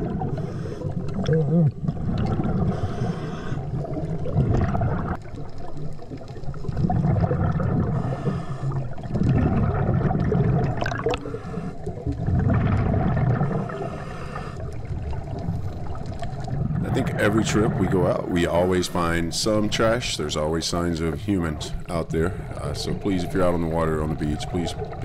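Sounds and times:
diver exhaling bubbles underwater: 0.0 - 17.9.

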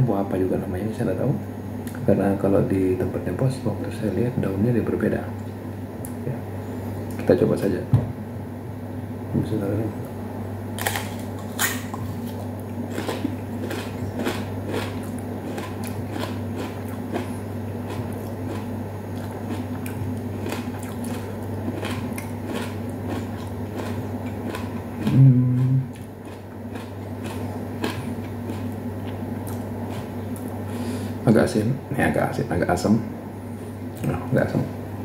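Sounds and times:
low room hum: 0.0 - 35.0
crunchy fruit chewing: 10.0 - 30.8
person humming mm: 25.0 - 26.0.

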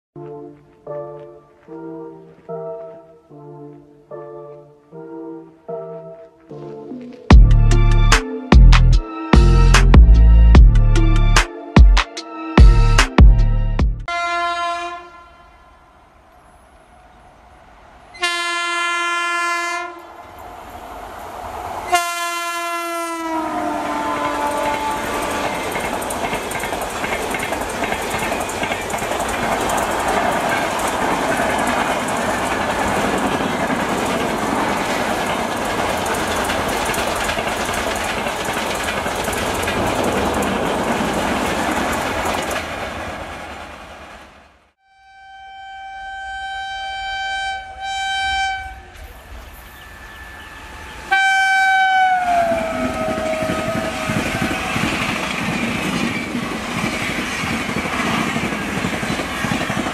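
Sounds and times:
train horn blasts: 14.1 - 16.1, 18.1 - 20.1, 21.9 - 25.9, 44.8 - 49.5, 50.2 - 55.2
train passing at speed: 14.5 - 44.8, 46.4 - 59.9.

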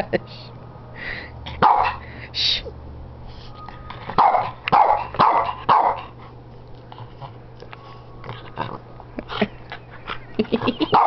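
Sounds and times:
dog barking: 1.6 - 2.0, 4.2 - 6.1.

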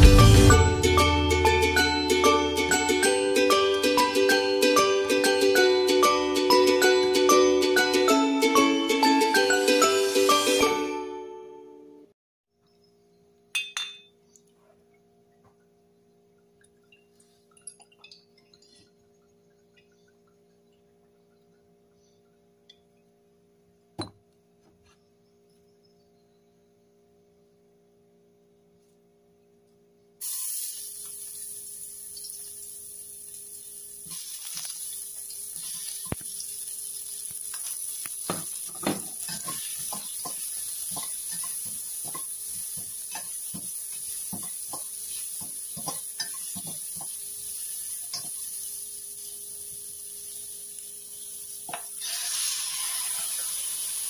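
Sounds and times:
clinks and knocks on steel pan: 13.5 - 14.1
aromatics sizzling in oil: 30.2 - 54.0.

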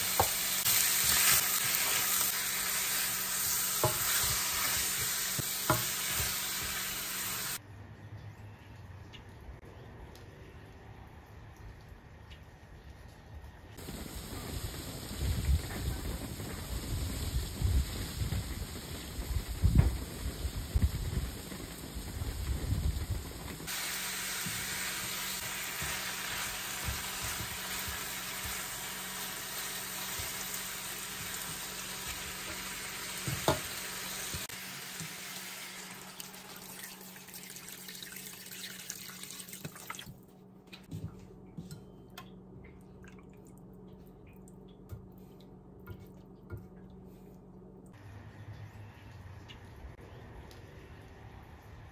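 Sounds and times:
water sizzling in hot pan: 0.0 - 7.6, 13.8 - 40.0.

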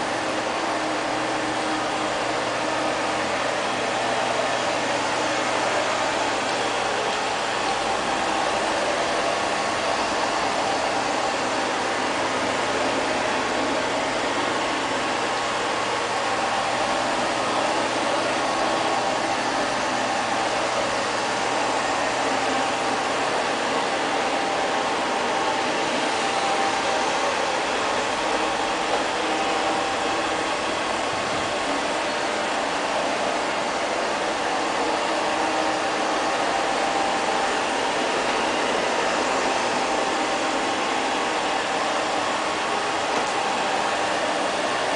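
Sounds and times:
robot vacuum cleaner whirring: 0.0 - 44.9.

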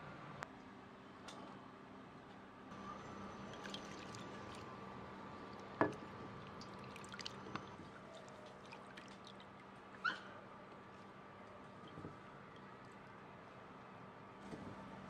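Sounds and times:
water swishing and dripping: 3.1 - 10.3.

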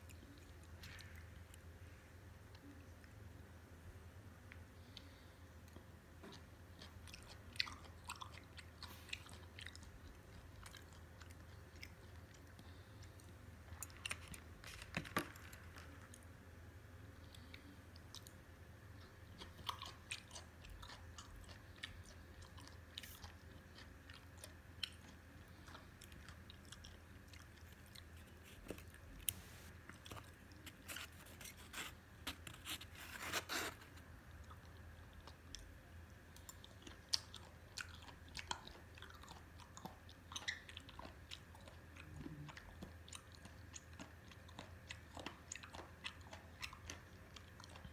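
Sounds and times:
faint low hum: 0.0 - 47.9
wet crunchy chewing: 6.3 - 16.3, 19.0 - 35.7.

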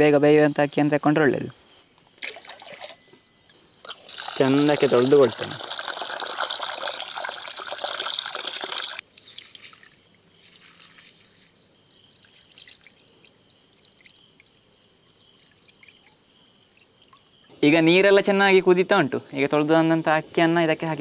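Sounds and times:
hands washing rice in water: 2.2 - 3.0, 3.9 - 11.4
tap water splashing into pot: 3.9 - 9.9.

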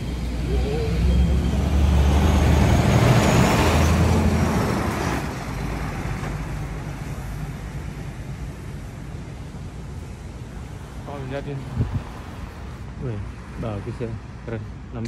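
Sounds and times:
large vehicle engine driving past: 0.0 - 6.9.

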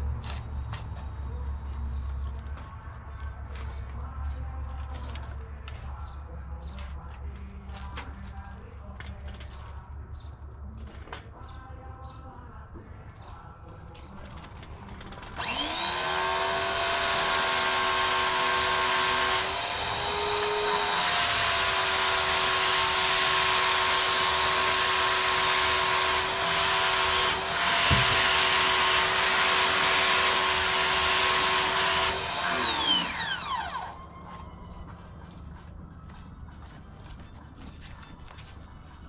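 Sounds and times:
pressure washer motor whine: 15.4 - 35.4.

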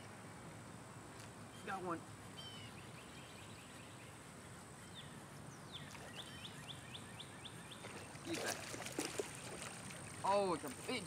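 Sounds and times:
bird chirps: 1.5 - 8.3.

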